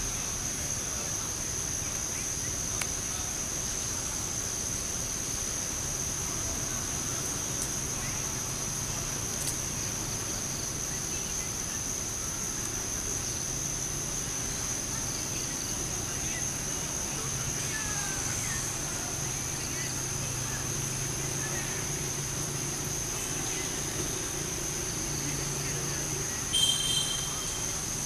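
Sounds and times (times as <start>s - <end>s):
insects droning: 0.0s - 28.0s.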